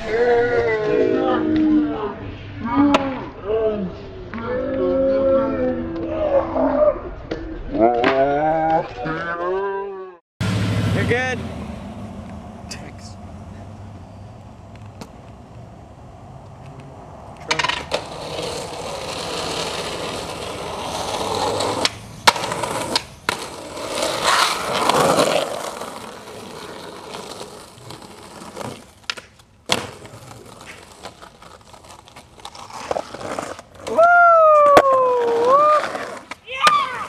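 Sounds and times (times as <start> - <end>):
skateboard wheels rolling on pavement: 10.4 - 37.0
skateboard tail cracks: 16.4 - 37.0.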